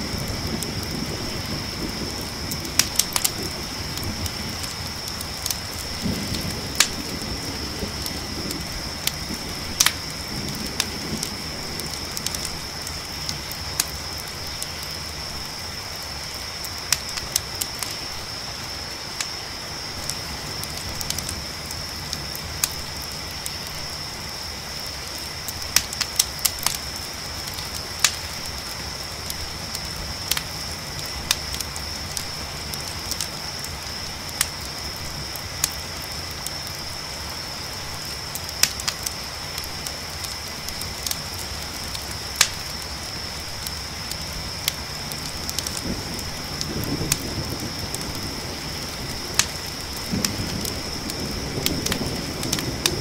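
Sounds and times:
distant thunder rumbling: 0.0s - 14.3s, 45.1s - 53.0s
campfire crackling and popping: 0.0s - 53.0s
crickets chirping: 0.0s - 53.0s.

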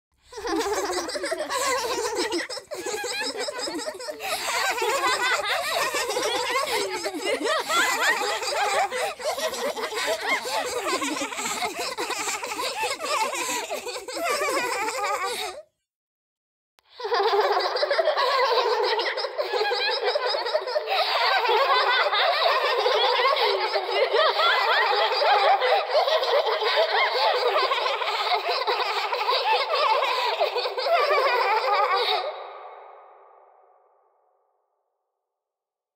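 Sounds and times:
creepy childlike giggles: 0.3s - 15.6s, 17.0s - 32.4s
fuller-range voices: 2.8s - 12.0s.

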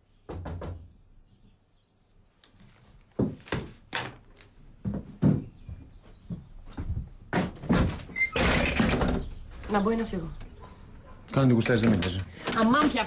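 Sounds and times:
footsteps on wooden floor: 3.0s - 8.2s
wooden door opening: 7.3s - 9.9s, 11.7s - 13.0s.

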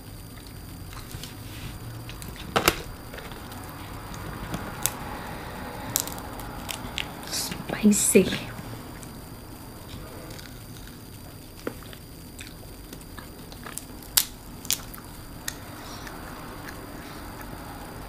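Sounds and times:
shells cracking: 5.9s - 7.1s, 12.4s - 15.6s
quiet chewing: 9.8s - 17.8s.

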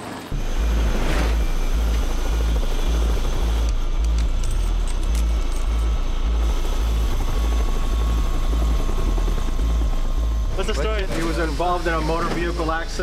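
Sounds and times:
helicopter rotor beating: 0.0s - 13.0s
helicopter turbine noise: 0.0s - 13.0s.

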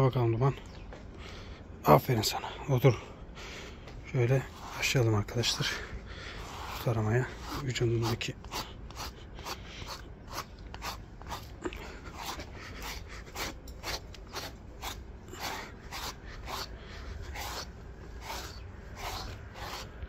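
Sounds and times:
comb scratching through dog fur: 4.4s - 5.7s, 6.4s - 20.0s.

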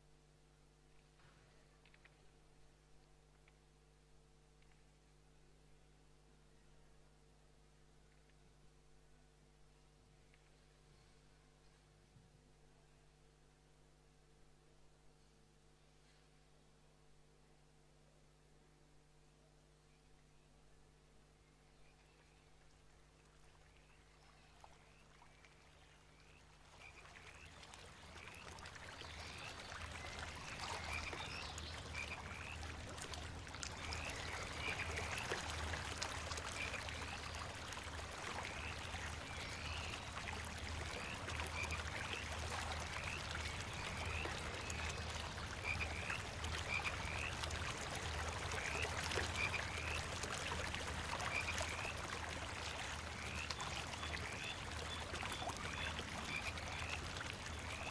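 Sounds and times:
running water: 22.6s - 57.9s
frogs chirping: 30.4s - 32.6s, 43.0s - 44.8s, 45.6s - 47.4s.

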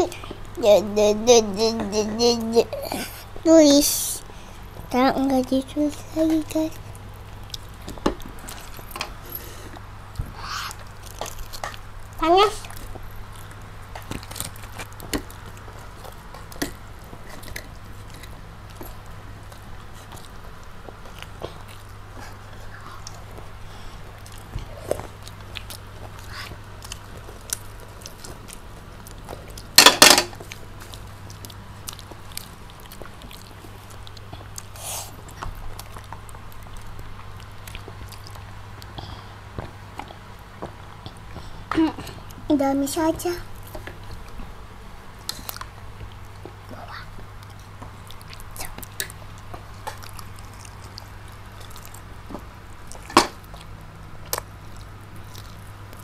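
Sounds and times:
steady low hum: 0.0s - 56.0s
crispy fried chicken being chewed: 6.4s - 42.4s, 43.3s - 56.0s.

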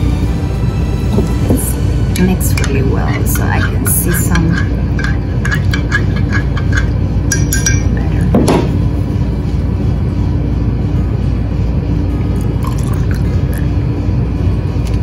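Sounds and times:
steady low rumble: 0.0s - 15.0s
spoon clinking against glass: 2.5s - 8.2s.

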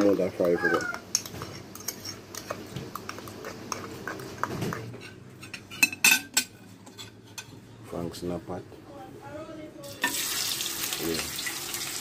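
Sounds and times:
cutlery clinking against dishes: 0.0s - 7.6s
spoon stirring in plastic cup: 0.0s - 7.6s.

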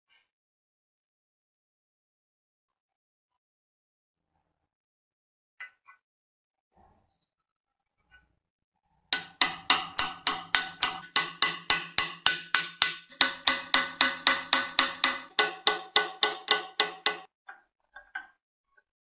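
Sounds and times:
hammer striking steel punch: 9.2s - 17.3s.

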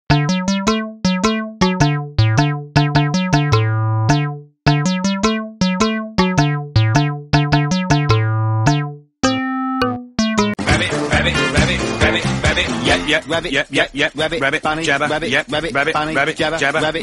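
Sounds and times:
keyboard melody: 0.1s - 12.1s.

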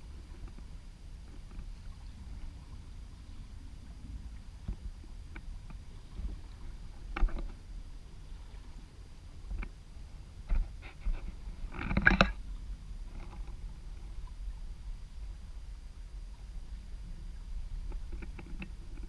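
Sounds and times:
wind and water along hull: 0.0s - 19.0s
knocks and creaks from rigging: 0.2s - 9.8s, 10.4s - 14.4s, 17.7s - 19.0s.

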